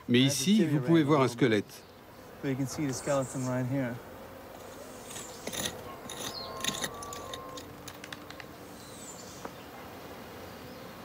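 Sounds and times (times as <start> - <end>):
metal trowel scraping soil: 4.6 - 7.7.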